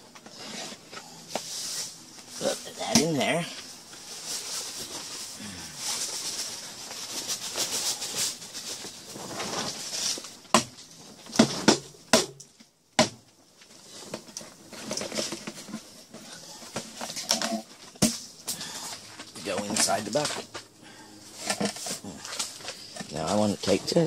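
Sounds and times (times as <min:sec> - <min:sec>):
mesh bags rustling and scraping: 0:00.0 - 0:11.8, 0:13.6 - 0:24.0.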